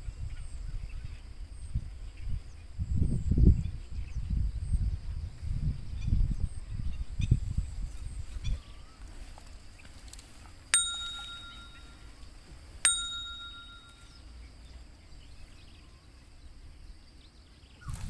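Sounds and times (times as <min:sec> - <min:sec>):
faint outdoor background: 0:00.0 - 0:18.0
bell-like notification dings: 0:10.8 - 0:12.2, 0:12.9 - 0:14.2.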